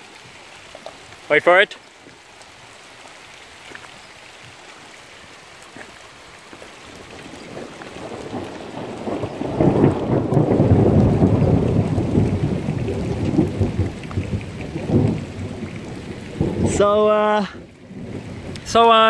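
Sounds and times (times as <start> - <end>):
rain falling: 0.0 - 19.0
rolling thunder: 7.2 - 19.0.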